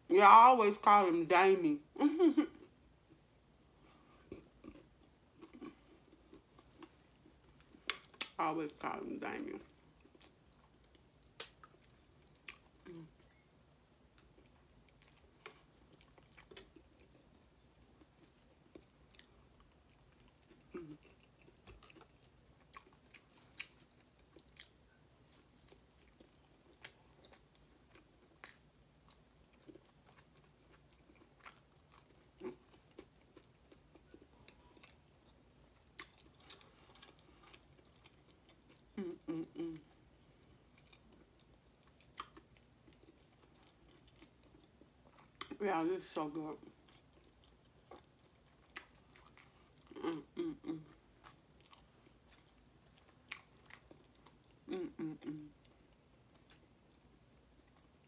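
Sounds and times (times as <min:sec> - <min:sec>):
person chewing food: 0:03.8 - 0:08.4, 0:09.6 - 0:45.5, 0:46.6 - 0:58.0.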